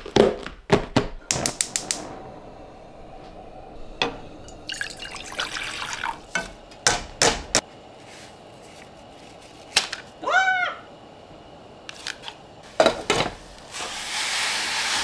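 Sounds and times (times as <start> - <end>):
kitchen tap running: 3.8 - 7.6.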